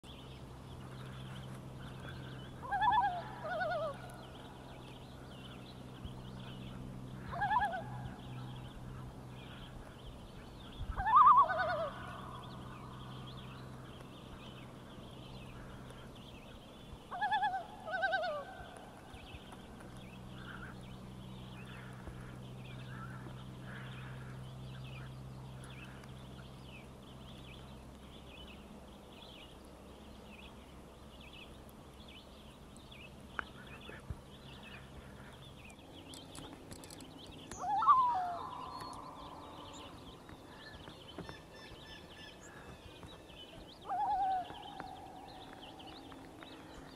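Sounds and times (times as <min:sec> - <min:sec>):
loon tremolo calls: 0:00.1 - 0:46.9.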